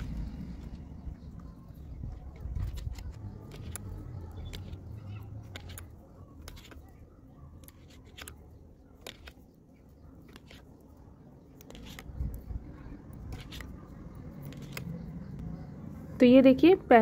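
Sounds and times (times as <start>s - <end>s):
knitting needles clicking: 2.3s - 15.6s.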